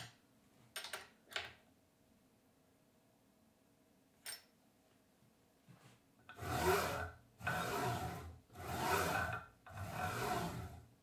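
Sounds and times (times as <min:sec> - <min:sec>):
bearing blocks sliding on metal shafts: 0:06.3 - 0:11.0.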